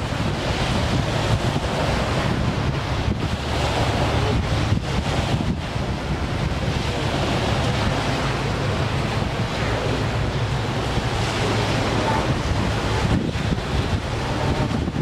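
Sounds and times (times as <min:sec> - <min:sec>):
water washing: 0:00.0 - 0:15.0
wind buffeting microphone: 0:00.0 - 0:15.0.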